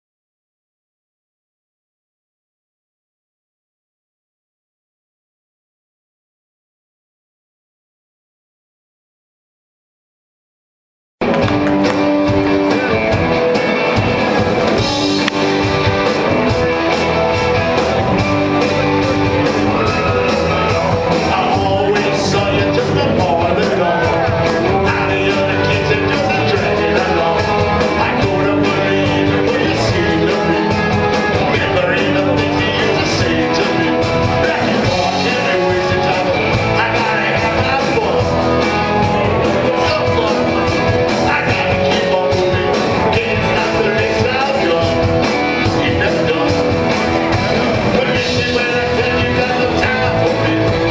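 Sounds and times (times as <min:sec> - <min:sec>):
live rock band playing: 0:11.2 - 0:50.9
man singing: 0:14.8 - 0:50.9.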